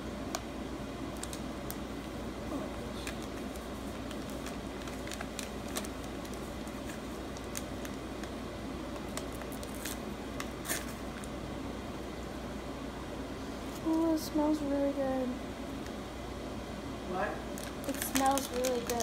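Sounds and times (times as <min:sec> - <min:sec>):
light clicks and crinkles: 0:17.6 - 0:19.0.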